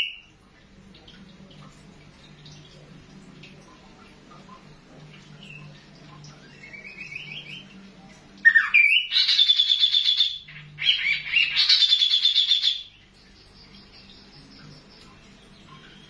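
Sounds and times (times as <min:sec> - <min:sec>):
songbird singing: 0:05.3 - 0:16.0.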